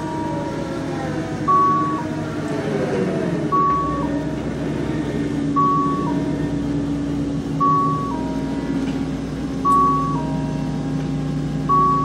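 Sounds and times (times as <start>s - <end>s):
approaching train rumble: 0.0s - 12.0s
level crossing two-note signal: 9.6s - 10.5s.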